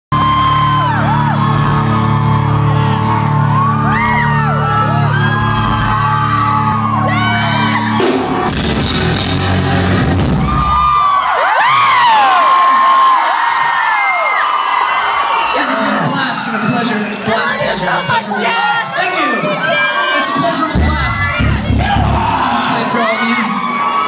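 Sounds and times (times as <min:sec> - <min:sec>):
rock band playing loud: 0:00.1 - 0:11.2, 0:20.5 - 0:23.8
fans screaming and whooping: 0:00.1 - 0:24.0.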